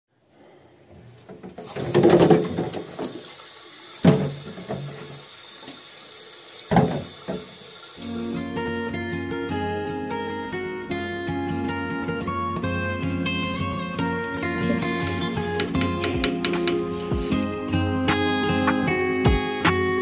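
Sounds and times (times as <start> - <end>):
water running from tap into basin: 1.6 - 8.5
acoustic guitar music: 8.0 - 20.0.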